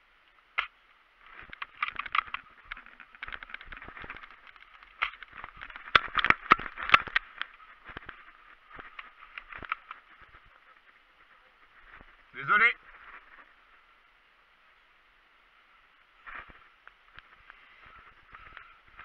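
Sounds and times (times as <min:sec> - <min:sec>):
footsteps crunching through dry grass: 0:01.2 - 0:13.9
carried gear rattling: 0:01.3 - 0:10.8.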